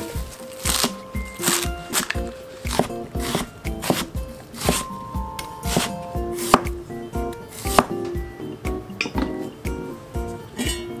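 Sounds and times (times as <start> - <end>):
cleaver cutting vegetables: 0.0 - 6.7, 7.4 - 8.0.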